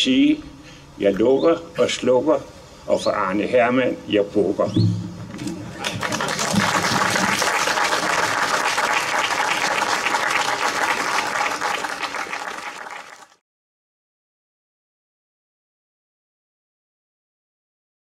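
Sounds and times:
audience applauding: 5.4 - 13.4.

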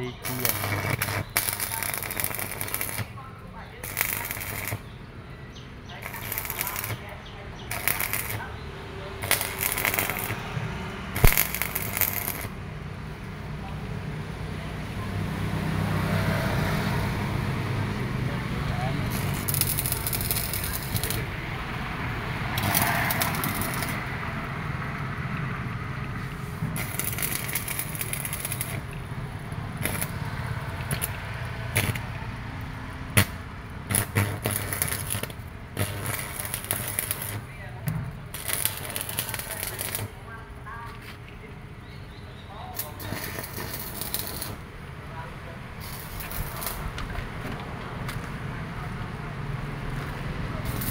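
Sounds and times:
welding arc crackling: 0.0 - 13.6, 17.6 - 40.7, 42.7 - 45.0, 45.6 - 48.4, 49.7 - 50.9
arc striking snap: 11.2 - 12.6
sharp pops: 11.2 - 12.6, 33.2 - 40.1.

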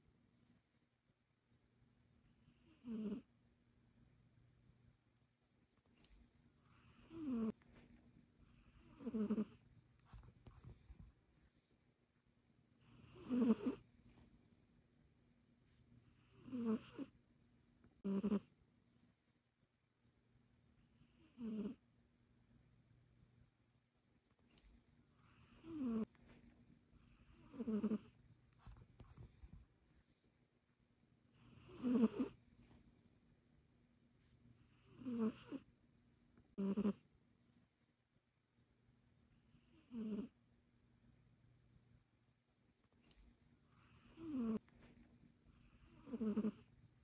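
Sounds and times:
cat snoring: 2.4 - 3.3, 6.6 - 7.6, 8.4 - 9.6, 12.8 - 13.8, 16.1 - 17.1, 18.0 - 18.5, 20.9 - 21.8, 25.1 - 26.1, 27.0 - 28.2, 31.3 - 32.4, 34.6 - 35.7, 36.5 - 37.0, 39.5 - 40.4, 43.7 - 44.6, 45.5 - 46.7.

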